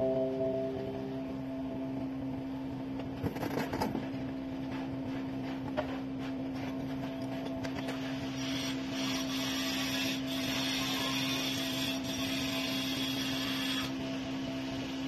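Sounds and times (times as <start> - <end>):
background music held tone: 0.0 - 2.0.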